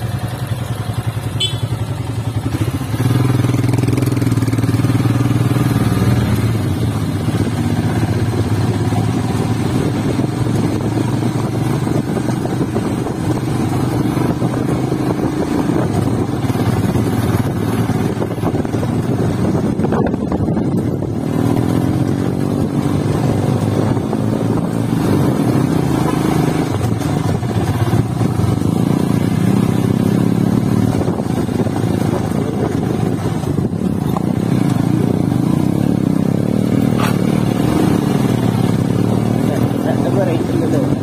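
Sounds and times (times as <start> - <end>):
motorcycle engine running: 0.0 - 41.0.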